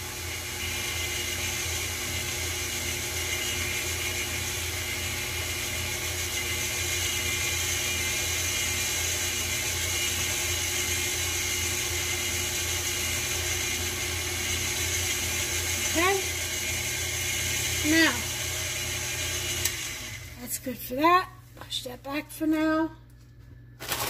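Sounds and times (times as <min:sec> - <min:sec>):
stand mixer motor whirring: 0:00.0 - 0:20.4.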